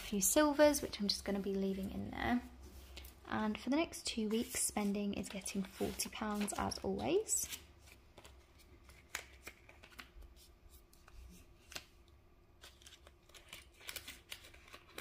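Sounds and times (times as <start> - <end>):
banknotes crinkling: 4.1 - 15.0.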